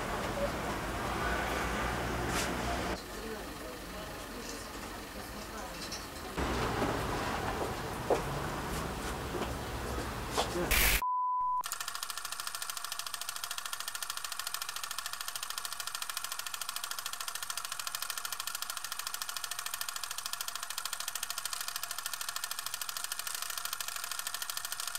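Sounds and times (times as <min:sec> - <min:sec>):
high test-tone beep: 0:10.7 - 0:11.6
film projector clatter: 0:11.6 - 0:24.9.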